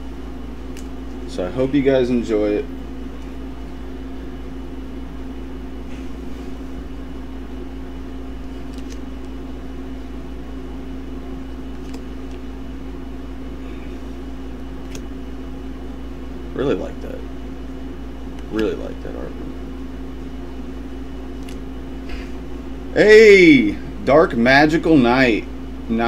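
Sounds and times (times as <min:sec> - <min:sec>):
air conditioner humming: 0:00.0 - 0:26.0
playing cards ticking: 0:11.6 - 0:12.5.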